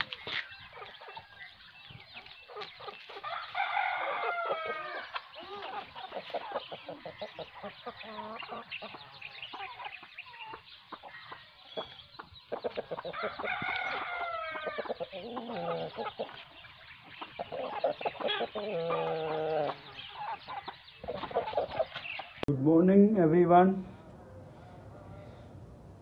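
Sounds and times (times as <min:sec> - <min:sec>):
chickens clucking: 0:00.0 - 0:22.5
rooster crowing: 0:03.2 - 0:05.2, 0:13.1 - 0:14.9.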